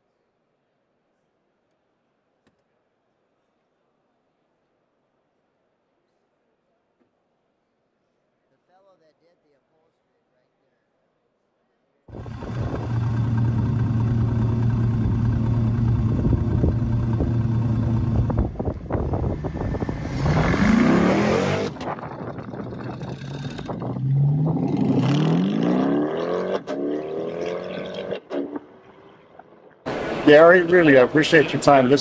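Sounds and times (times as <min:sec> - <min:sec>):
pickup engine running and accelerating: 0:12.1 - 0:25.7.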